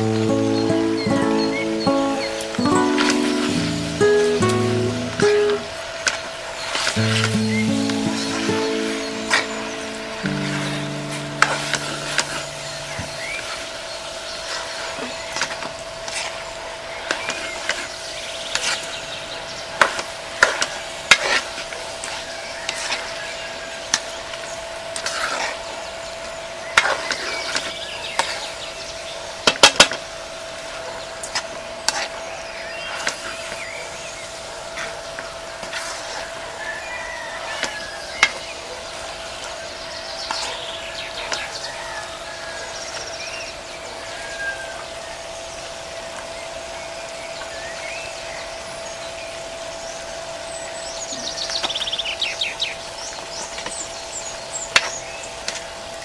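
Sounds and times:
faint hum: 0:00.0 - 0:20.8
spatula scraping a wok: 0:25.0 - 0:25.6, 0:31.8 - 0:32.2.

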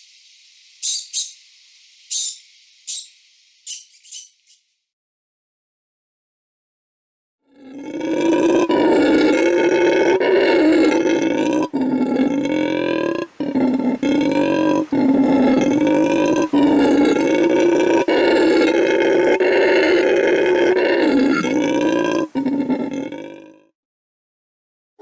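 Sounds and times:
howler monkey roaring: 0:07.5 - 0:23.7.

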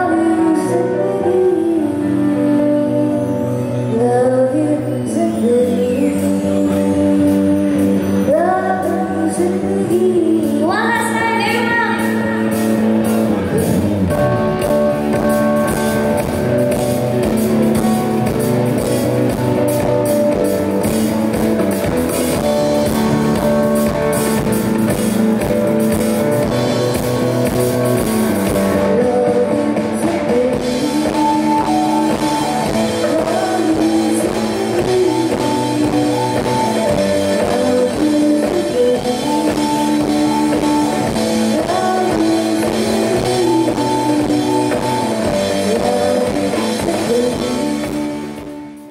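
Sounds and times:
woman singing: 0:00.0 - 0:12.9, 0:28.0 - 0:48.5
live band playing: 0:00.0 - 0:48.9
drum kit: 0:09.4 - 0:48.9.

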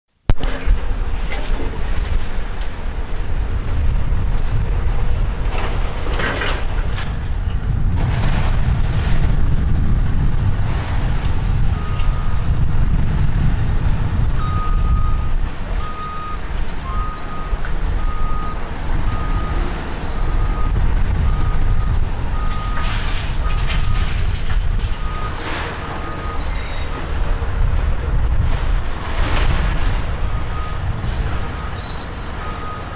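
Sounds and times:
diesel engine rumbling: 0:00.3 - 0:32.9
building debris crashing: 0:00.4 - 0:15.9, 0:17.0 - 0:32.9
backup alarm beeping: 0:14.4 - 0:24.0, 0:30.3 - 0:32.9.

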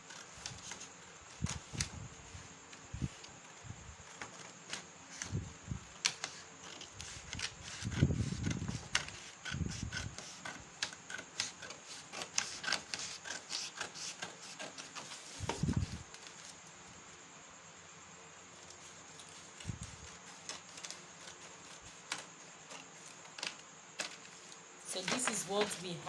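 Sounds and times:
scissors snipping cardboard: 0:06.0 - 0:15.7.

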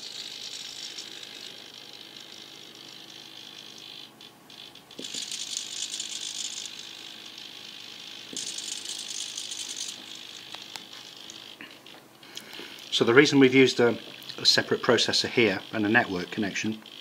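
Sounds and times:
servos buzzing: 0:00.0 - 0:17.0.

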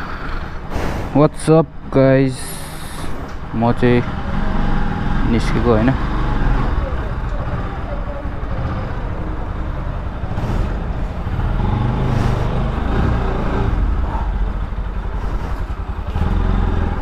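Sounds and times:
motorcycle engine running: 0:03.8 - 0:17.0.

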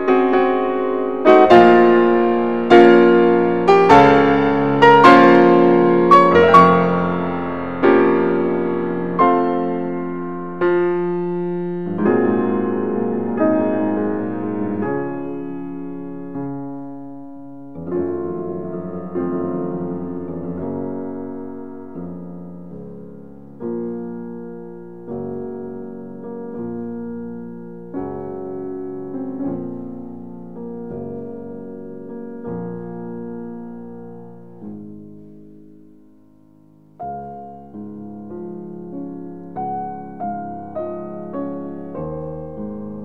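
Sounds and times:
slow solo piano: 0:00.0 - 0:43.0.

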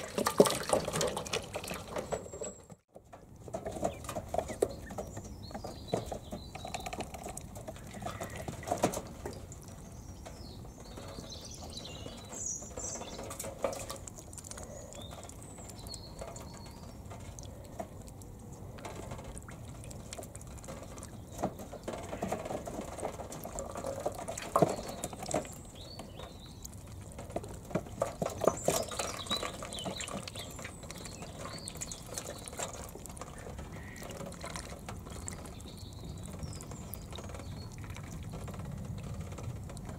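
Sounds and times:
ducklings splashing in water: 0:00.0 - 0:39.9
ducklings peeping: 0:03.7 - 0:39.9.

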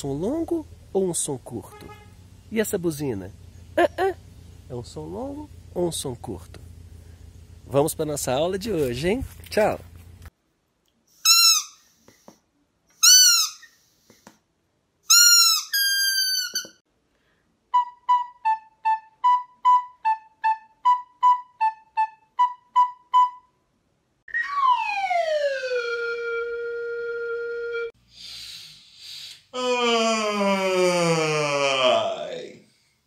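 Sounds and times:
rubber squeeze toy squeaking: 0:11.2 - 0:11.8, 0:13.0 - 0:13.8, 0:15.1 - 0:16.8
slide whistle gliding downward: 0:17.8 - 0:23.5, 0:24.3 - 0:27.9.

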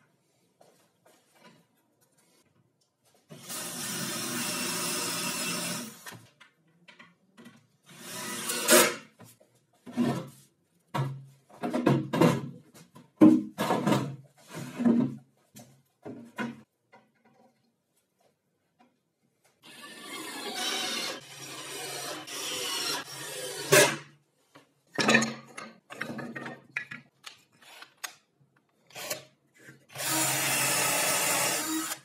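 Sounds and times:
cordless drill driving screws: 0:29.9 - 0:32.0.

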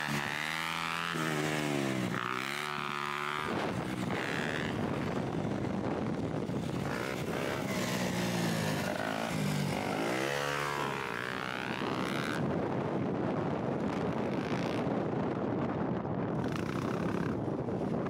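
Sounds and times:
dirt bike engine revving: 0:00.0 - 0:05.6, 0:06.6 - 0:12.6.

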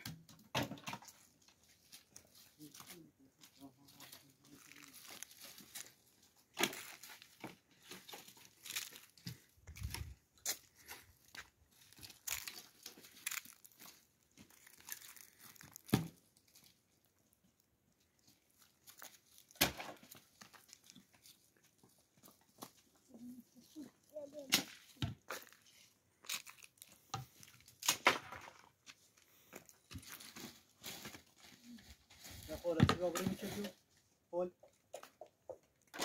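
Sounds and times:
crinkling and rustling: 0:00.0 - 0:34.2.

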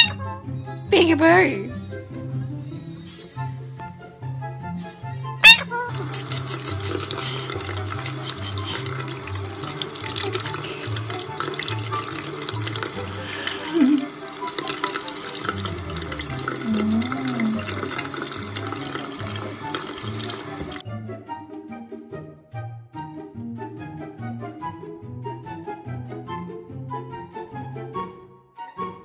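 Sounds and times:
pulsing bass background music: 0:00.0 - 0:14.0, 0:15.5 - 0:17.8, 0:20.4 - 0:28.9
tap water running into sink: 0:05.9 - 0:20.8.

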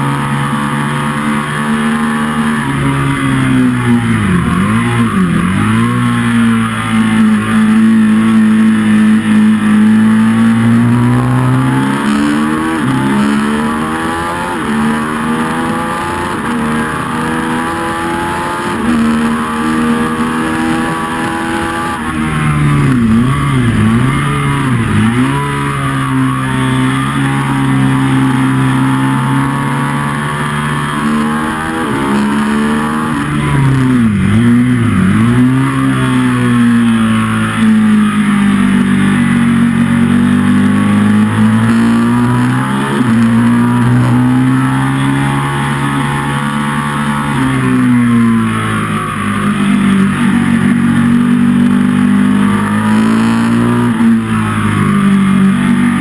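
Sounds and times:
motorcycle engine under hard riding: 0:00.0 - 0:56.0.

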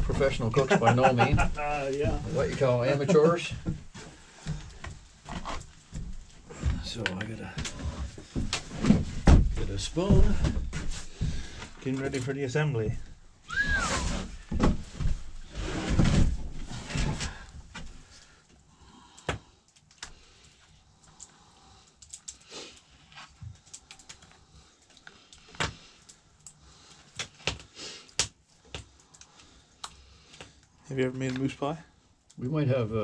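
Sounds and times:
rustling and clattering: 0:00.0 - 0:18.4.

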